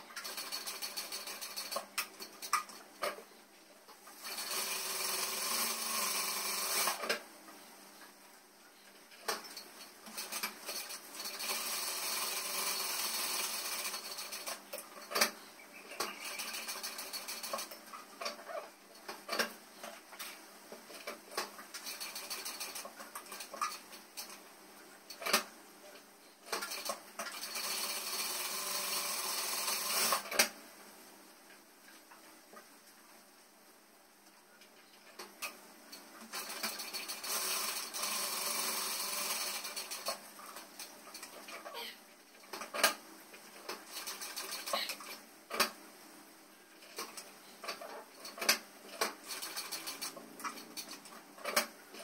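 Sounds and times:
sewing machine running: 0.0 - 1.9, 4.2 - 7.2, 10.1 - 14.6, 16.1 - 17.8, 21.7 - 23.8, 26.5 - 30.4, 36.3 - 40.6, 43.6 - 45.2, 49.0 - 50.9.

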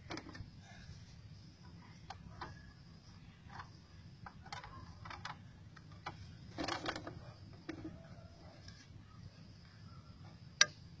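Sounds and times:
plastic clicks and crackles: 3.5 - 7.9.

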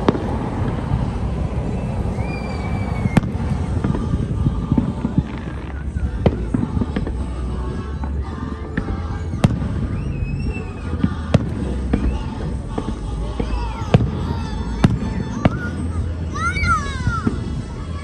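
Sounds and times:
firework bangs: 0.0 - 18.0
low rumble: 0.0 - 18.0.

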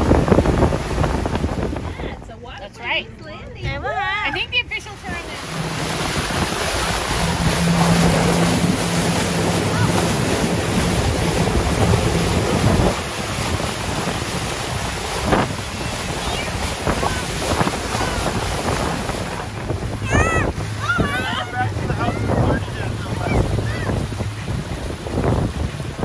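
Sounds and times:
boat motor humming: 0.0 - 26.0
wind buffeting microphone: 0.0 - 26.0.

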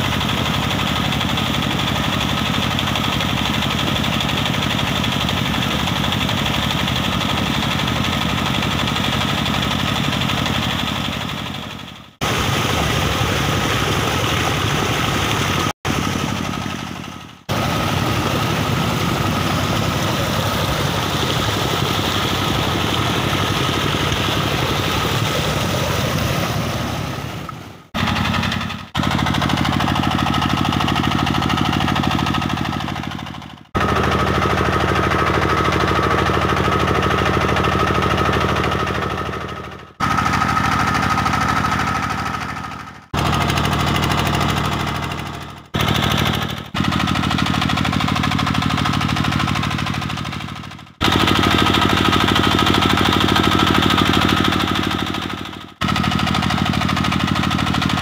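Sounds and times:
diesel pump engine running: 0.0 - 58.0
water gushing into tank: 12.2 - 39.4.

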